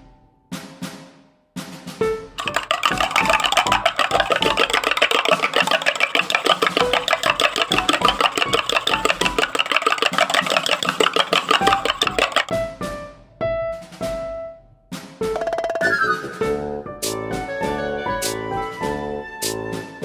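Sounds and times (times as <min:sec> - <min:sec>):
spoon clinking in metal tumbler: 0:02.4 - 0:12.5.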